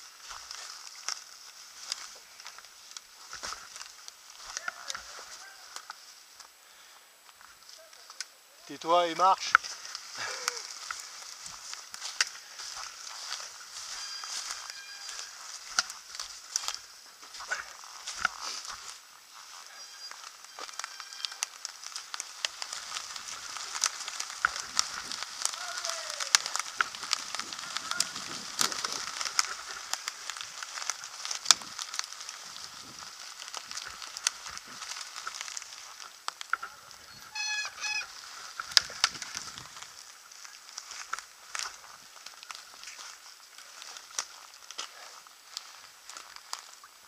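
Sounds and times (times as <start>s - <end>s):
bike tyres rolling over leaves: 0.0s - 47.0s
bike rattling: 20.3s - 44.7s.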